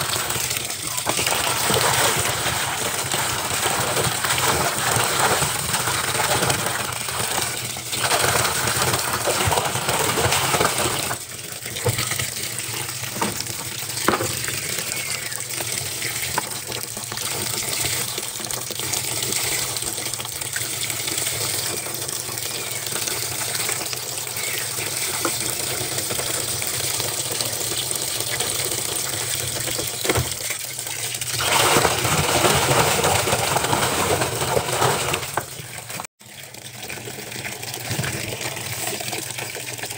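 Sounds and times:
water gushing into washing machine: 0.0s - 39.9s.

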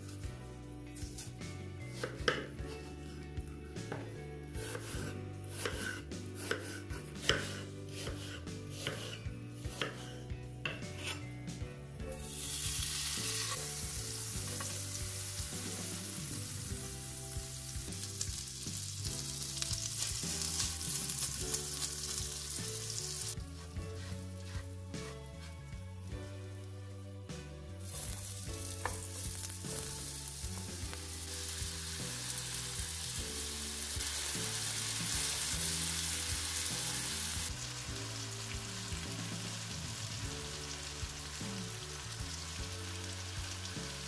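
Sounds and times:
knife slicing on wooden board: 4.6s - 10.0s, 23.6s - 25.2s
butter sizzling in a frying pan: 12.1s - 23.7s, 27.8s - 44.0s
spatula stirring: 20.0s - 25.5s.

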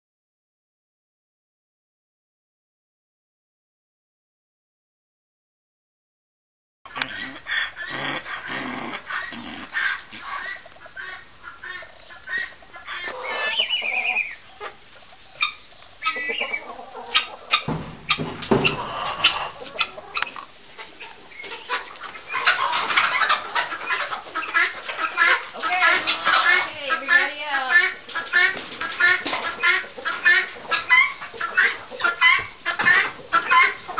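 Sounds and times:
hens clucking: 6.9s - 33.9s
sharp knocks: 17.6s - 19.0s.

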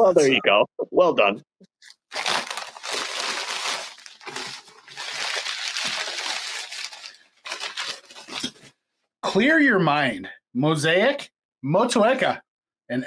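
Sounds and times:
paper crinkling by hand: 1.8s - 8.7s.

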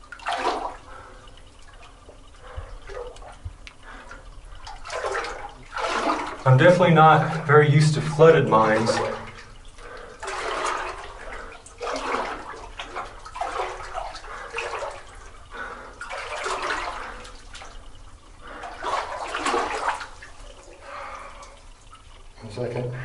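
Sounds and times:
footsteps splashing through water: 4.6s - 6.4s, 10.2s - 15.1s, 16.0s - 17.8s, 18.7s - 20.6s.

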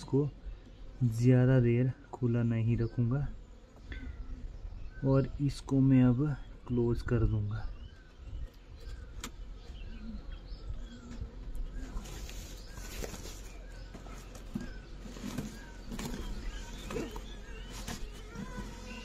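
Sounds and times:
faint bird chirps: 0.0s - 19.0s
plastic sack rustling: 11.8s - 19.0s.

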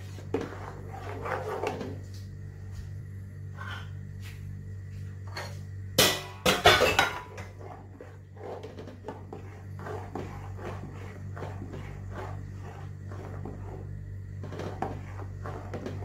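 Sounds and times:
spatula scraping a pot: 0.0s - 2.1s, 3.5s - 4.0s, 6.7s - 16.0s
steady low hum: 0.0s - 16.0s
kitchen utensils and dishes clattering: 6.0s - 7.4s.

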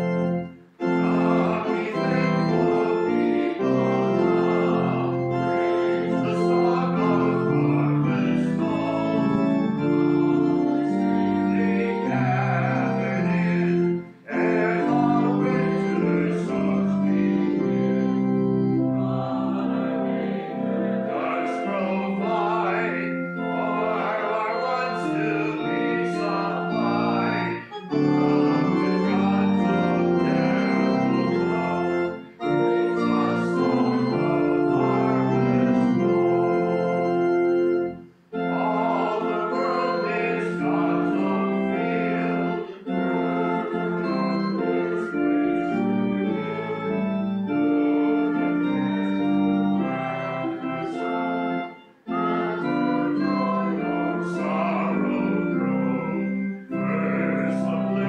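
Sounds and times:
congregation singing a hymn: 0.0s - 58.0s
organ chords: 0.0s - 58.0s.

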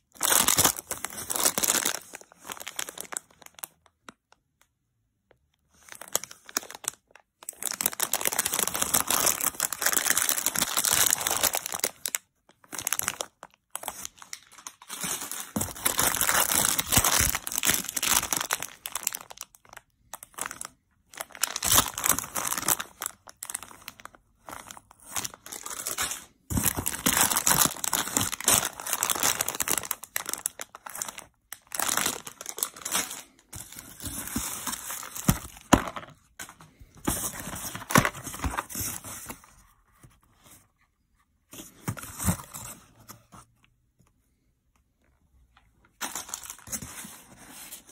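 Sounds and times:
plastic bags crinkling: 0.0s - 3.8s, 5.9s - 38.8s, 45.9s - 46.9s.

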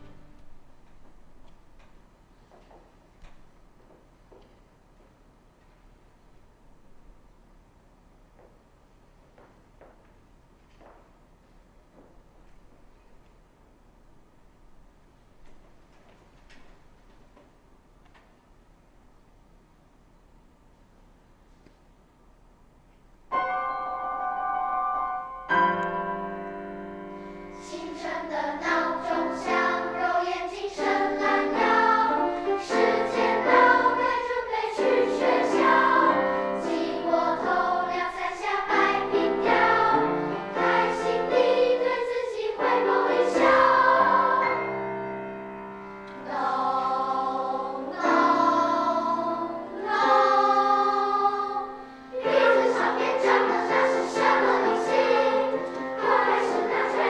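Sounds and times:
children's choir singing: 23.3s - 57.0s.

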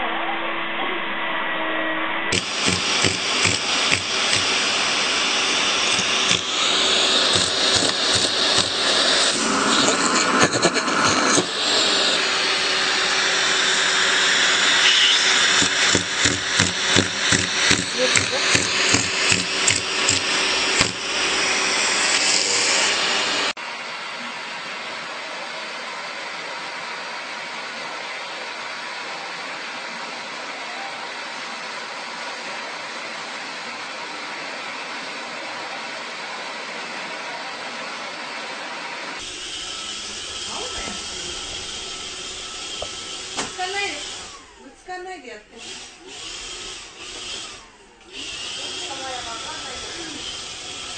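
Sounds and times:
regular pulsing: 2.3s - 23.5s
vacuum cleaner running: 2.3s - 50.9s.

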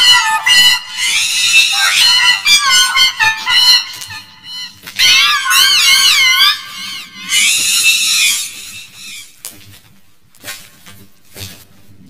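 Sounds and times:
distorted cartoon animal call: 0.0s - 9.4s.

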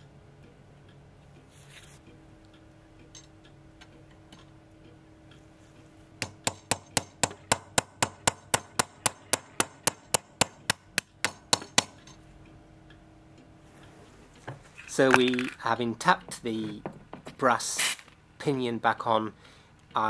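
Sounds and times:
sharp metallic taps: 6.2s - 12.2s.

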